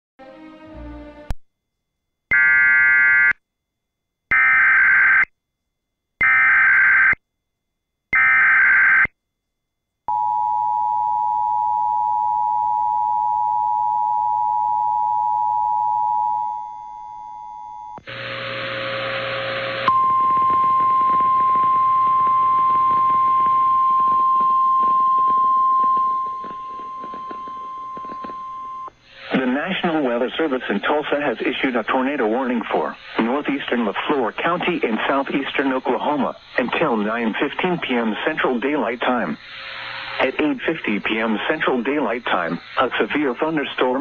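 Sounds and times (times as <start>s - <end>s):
background static: 0.2s - 44.0s
radio hiss: 25.3s - 44.0s.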